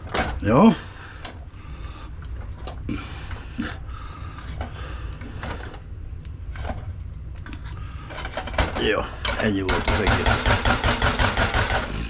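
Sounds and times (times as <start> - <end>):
steady low hum: 0.0 - 12.0
masher knocking against pot: 9.3 - 11.8.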